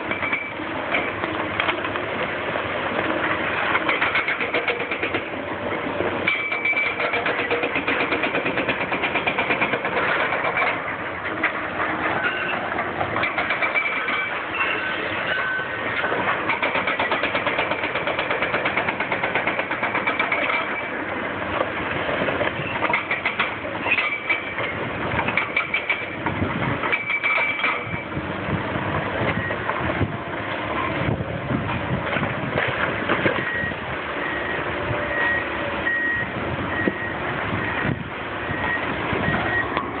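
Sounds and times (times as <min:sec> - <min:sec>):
diesel engines running: 0:00.0 - 0:40.0
machinery and masonry clanking: 0:00.0 - 0:40.0
reversing alarm beeping: 0:12.2 - 0:12.6, 0:13.7 - 0:15.8, 0:33.4 - 0:40.0.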